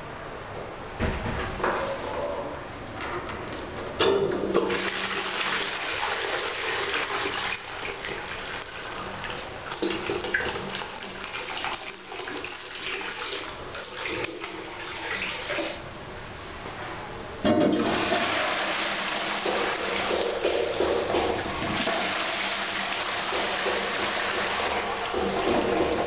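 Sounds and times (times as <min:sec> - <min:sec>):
toilet flushing: 0:04.1 - 0:15.9, 0:17.4 - 0:26.0.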